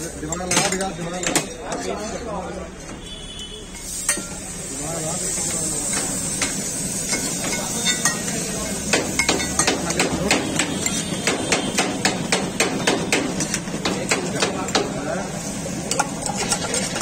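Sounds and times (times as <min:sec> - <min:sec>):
metal spatula tapping on griddle: 0:05.9 - 0:08.3, 0:08.9 - 0:15.0.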